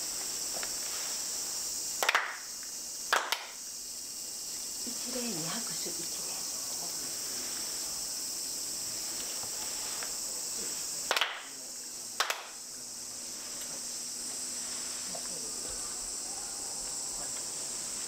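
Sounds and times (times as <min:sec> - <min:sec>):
high insect drone: 0:00.0 - 0:18.0
group handclaps: 0:02.0 - 0:02.5, 0:03.1 - 0:03.6, 0:11.0 - 0:11.5, 0:12.2 - 0:12.6.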